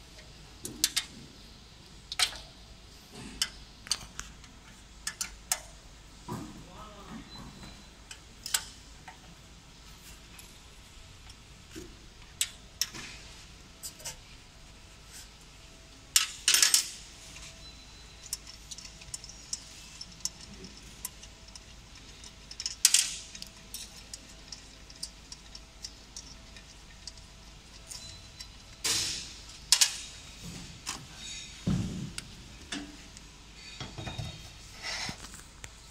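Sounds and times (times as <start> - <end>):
metal parts clicking and knocking: 0.2 - 1.1, 5.0 - 5.7, 16.1 - 31.4.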